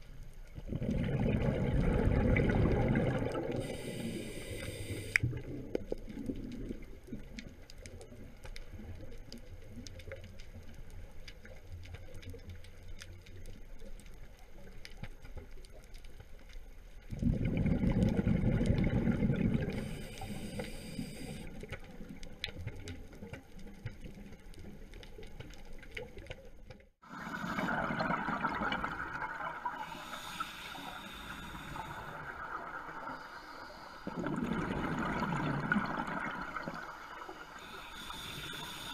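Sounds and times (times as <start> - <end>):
steady water noise: 0.0 - 38.9
scuba regulator exhaled bubbles: 0.6 - 7.0, 17.1 - 21.6, 27.0 - 38.9
hissing inhalations: 3.6 - 5.2, 19.8 - 21.5, 29.8 - 32.3, 37.4 - 38.9.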